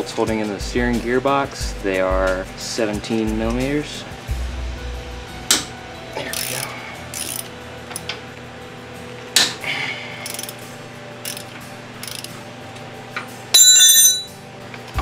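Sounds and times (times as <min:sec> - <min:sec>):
ratchet wrench clicking: 0:06.3 - 0:08.1, 0:10.2 - 0:10.6, 0:11.2 - 0:12.4.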